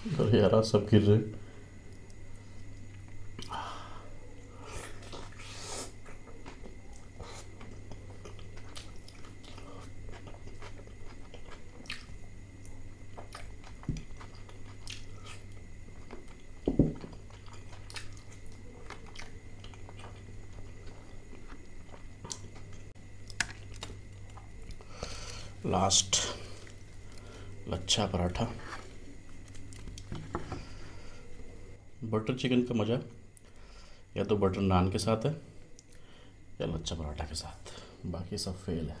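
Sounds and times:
person chewing food: 4.7 - 25.6.

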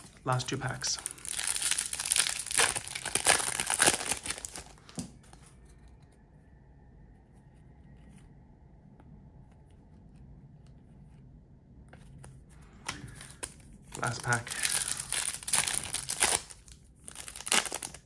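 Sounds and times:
wrapper tearing and crinkling: 0.9 - 4.9, 13.1 - 18.0.

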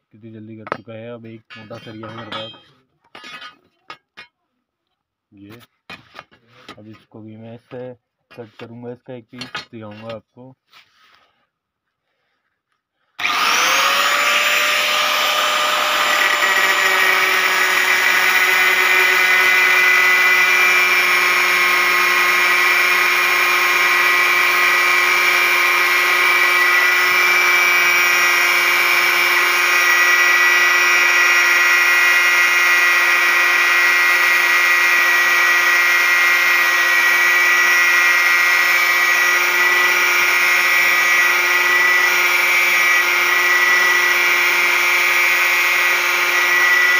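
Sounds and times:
angle grinder cutting steel: 1.5 - 2.7, 13.2 - 46.9.

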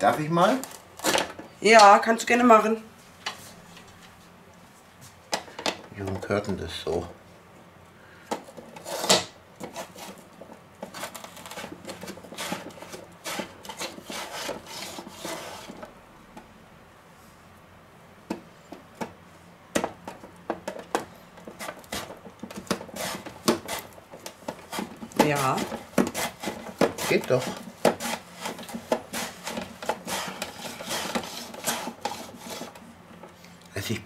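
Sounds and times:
potato rasping on mandoline blade: 10.8 - 15.9, 21.5 - 32.8.

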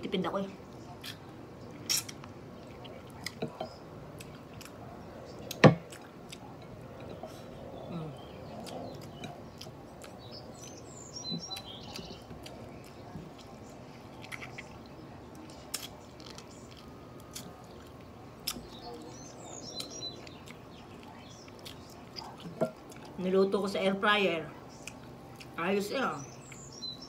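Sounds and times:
close chewing and mouth clicks: 0.7 - 23.2, 24.7 - 25.6
small bird chirping: 7.1 - 23.1, 25.8 - 27.0.

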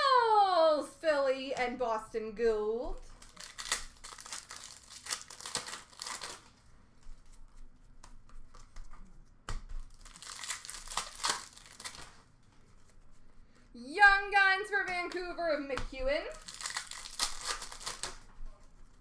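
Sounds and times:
plastic wrappers crinkling and tearing: 3.1 - 7.7, 9.8 - 13.0, 16.0 - 19.0.

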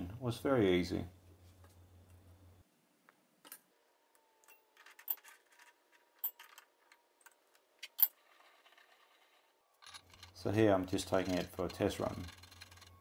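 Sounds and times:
metal parts clicking: 4.4 - 13.0.

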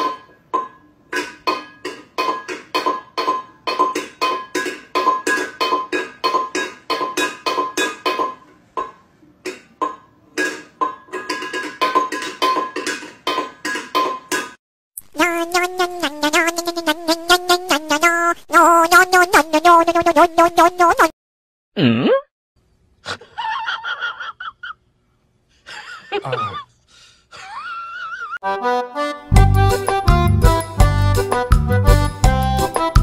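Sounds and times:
metal bowl clattering on tile floor: 0.0 - 14.6.

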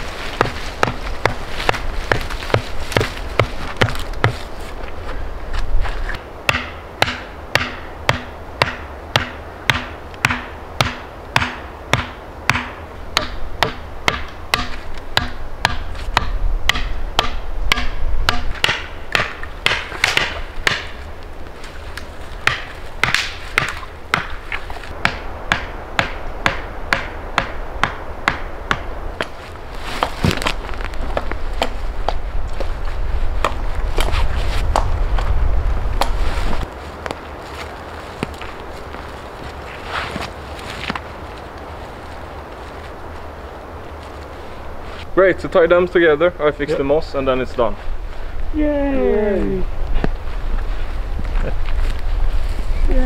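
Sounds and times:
tool striking wood: 6.5 - 21.0, 22.4 - 24.3, 25.0 - 29.3.

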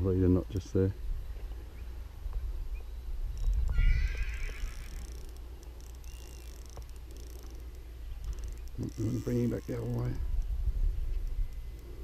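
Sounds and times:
wavering animal call: 3.4 - 5.4.

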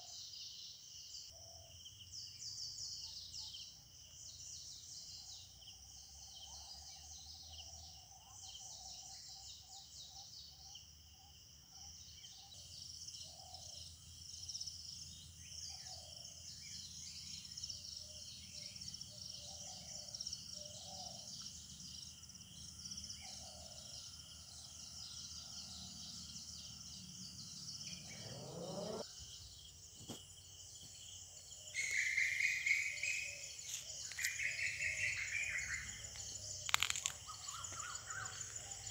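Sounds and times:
insects droning: 0.0 - 38.9
birds calling: 23.2 - 29.1, 31.7 - 38.9.

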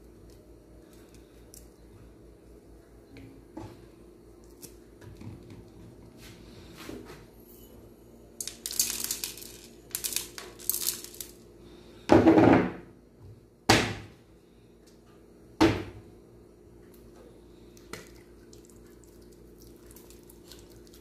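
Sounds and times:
peppercorns crackling and rattling: 8.4 - 11.5.

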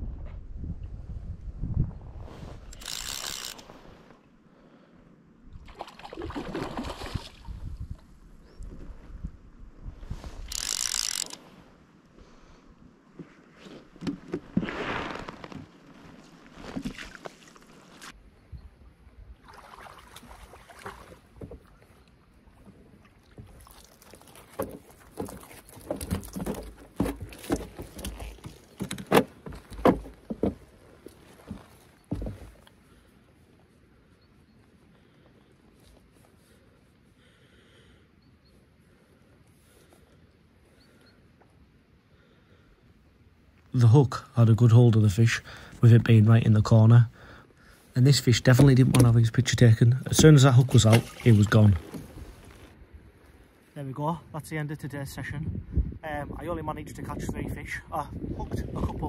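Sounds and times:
wind on microphone: 0.0 - 3.2, 7.0 - 10.6, 55.2 - 59.0
fish splashing at surface: 50.8 - 51.9.

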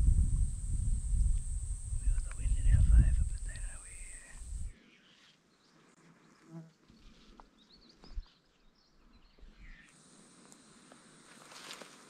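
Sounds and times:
brief low buzz: 0.0 - 4.7.

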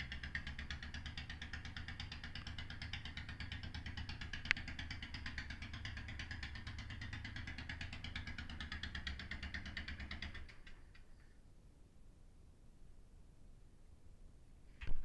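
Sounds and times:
motorcycle engine idling: 0.0 - 11.2.

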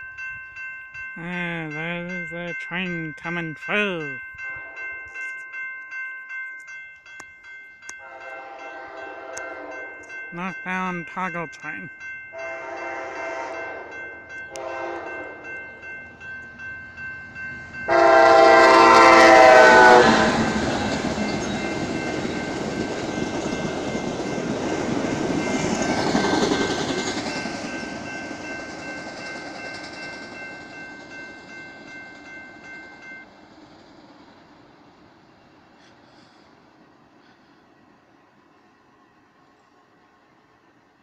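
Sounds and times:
crossing bell ringing: 0.0 - 33.4
train horn blasts: 8.0 - 10.1, 12.4 - 15.4, 17.9 - 20.6
train wheels rushing on rails: 17.5 - 38.4.

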